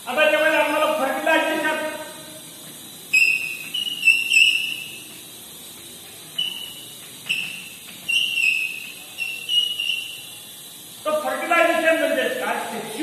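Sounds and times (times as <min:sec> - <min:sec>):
chalk squeaking on chalkboard: 0:03.2 - 0:05.2, 0:06.3 - 0:10.5.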